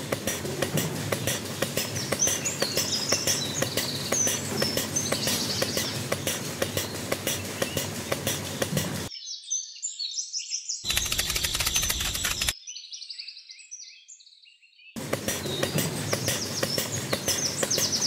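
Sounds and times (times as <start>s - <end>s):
birds chirping: 0.0s - 18.0s
fast even clicking: 10.9s - 12.5s.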